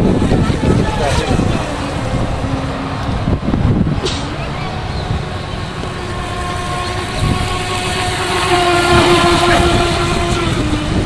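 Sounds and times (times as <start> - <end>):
electric motor high whine: 4.4 - 11.0.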